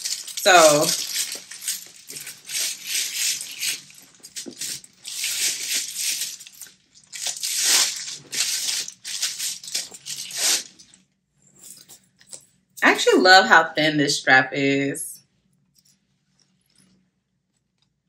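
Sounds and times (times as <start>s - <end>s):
metal chain jingling: 0.0s - 6.7s.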